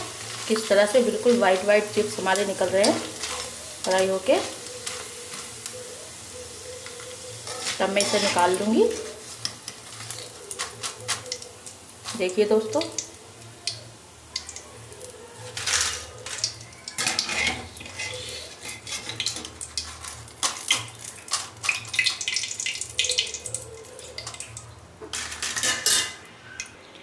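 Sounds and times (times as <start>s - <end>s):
wire skimmer scraping metal pan: 7.4s - 11.3s, 15.4s - 21.5s
oil dripping into pan: 12.8s - 15.1s, 19.2s - 24.8s.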